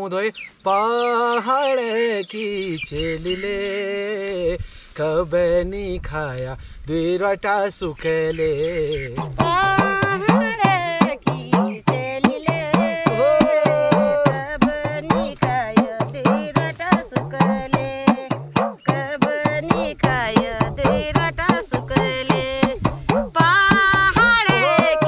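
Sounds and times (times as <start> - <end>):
person singing folk melody: 0.6 - 25.0
steady drum beat: 9.0 - 25.0.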